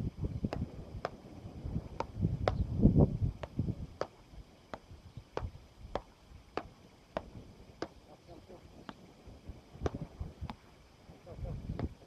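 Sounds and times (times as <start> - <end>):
wind rumbling on microphone: 0.0 - 12.0
paddles striking ball: 0.5 - 1.2, 2.0 - 2.7, 3.4 - 8.1, 11.7 - 12.0.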